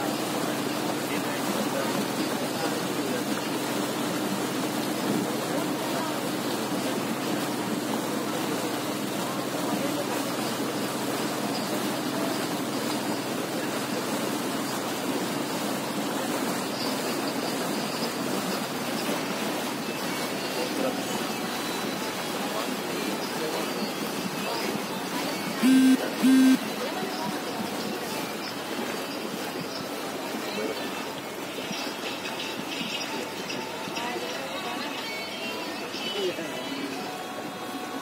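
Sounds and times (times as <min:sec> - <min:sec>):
rushing water and air: 0:00.0 - 0:34.0
motorboat engine drone: 0:00.1 - 0:26.9.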